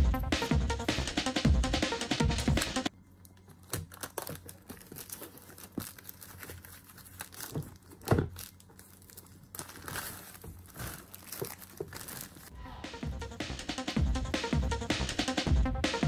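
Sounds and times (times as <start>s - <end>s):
plastic shrink-wrap tearing: 3.6s - 12.5s.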